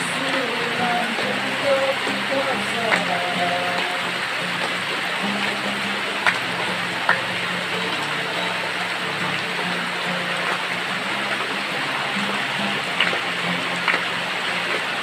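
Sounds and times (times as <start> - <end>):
acoustic guitar music: 0.0 - 15.0
waterfall and stream rushing: 0.0 - 15.0.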